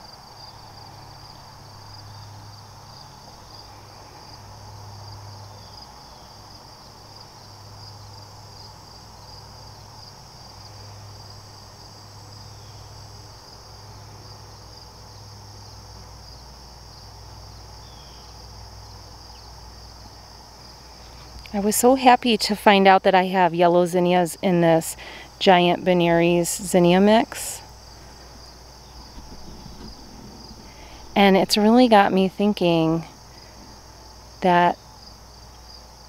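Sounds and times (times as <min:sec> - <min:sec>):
crickets trilling: 0:00.0 - 0:36.0
low hum: 0:27.5 - 0:34.0.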